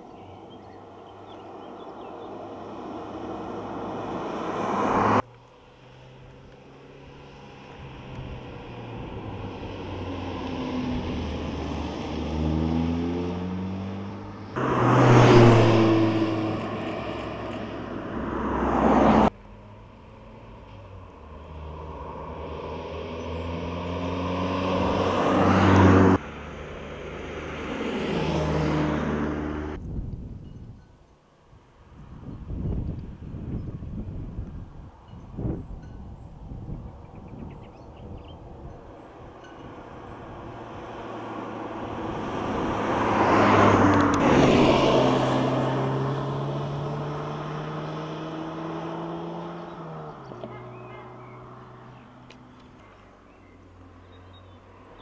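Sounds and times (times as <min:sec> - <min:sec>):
car engine accelerating: 0:02.4 - 0:29.8, 0:40.1 - 0:53.4.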